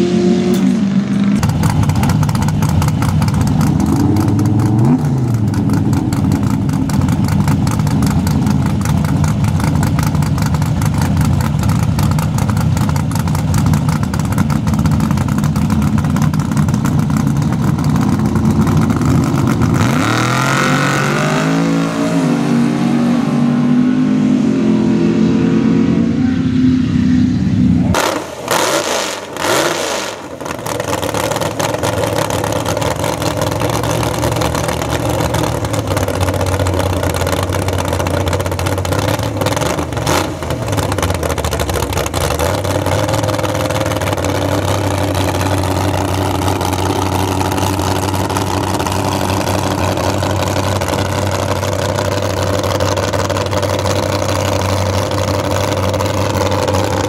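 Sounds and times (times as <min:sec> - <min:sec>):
truck engine revving: 0:00.0 - 0:57.0
race engine idling roughly: 0:01.4 - 0:20.1, 0:30.1 - 0:57.0.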